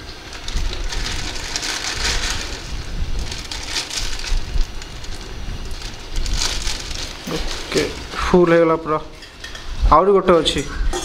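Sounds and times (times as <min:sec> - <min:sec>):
plastic packet crinkling: 0:00.0 - 0:08.5
dry noodles crumbling: 0:00.0 - 0:08.7.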